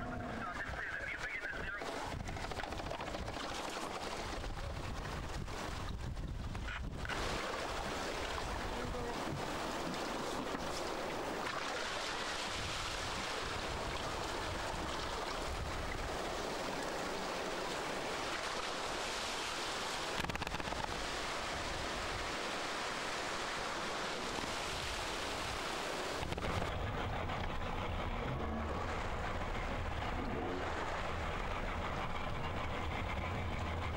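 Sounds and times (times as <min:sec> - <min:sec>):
wind rumbling on microphone: 0:00.0 - 0:11.4, 0:12.2 - 0:17.3, 0:19.9 - 0:33.9
surf washing around boat: 0:00.0 - 0:33.9.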